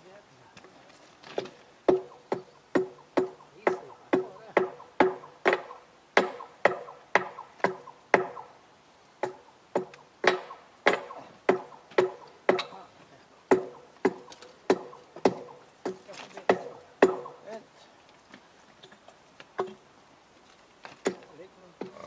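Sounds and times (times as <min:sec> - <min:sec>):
sledgehammer striking steel rail: 0:09.2 - 0:12.8.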